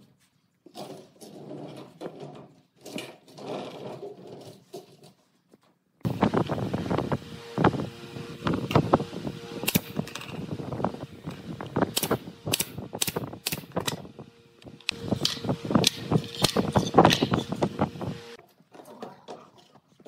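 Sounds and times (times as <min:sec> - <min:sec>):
brad nailer firing shots: 0:09.6 - 0:10.1, 0:11.8 - 0:14.1.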